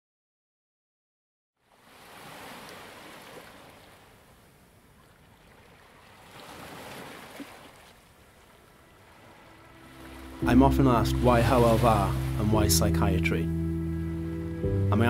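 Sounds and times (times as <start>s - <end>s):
sea surf washing in: 1.7s - 4.4s, 5.7s - 14.7s.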